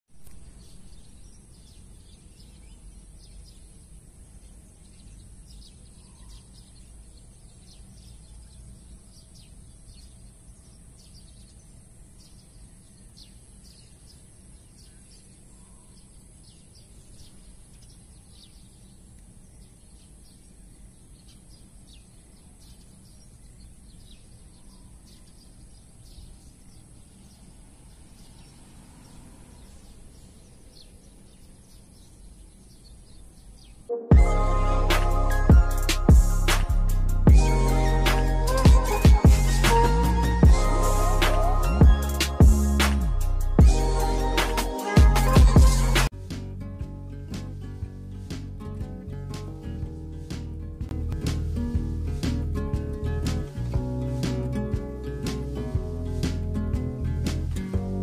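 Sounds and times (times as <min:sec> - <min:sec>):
bird chirps: 0:00.2 - 0:46.1
high-pitched hiss: 0:34.1 - 0:46.1.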